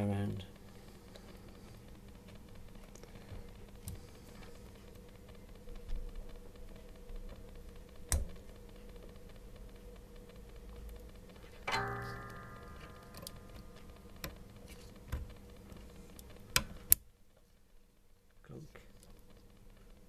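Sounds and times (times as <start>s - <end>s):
sharp click: 11.6s - 15.6s.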